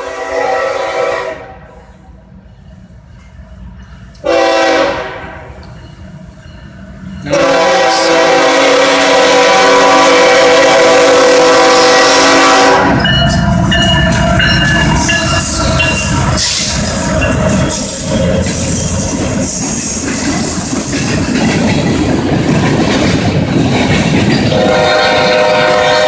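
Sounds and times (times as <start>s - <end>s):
locomotive horn blast: 0.0s - 1.7s, 4.2s - 5.5s, 7.3s - 13.1s, 24.5s - 26.0s
locomotives rumbling past: 10.8s - 26.0s.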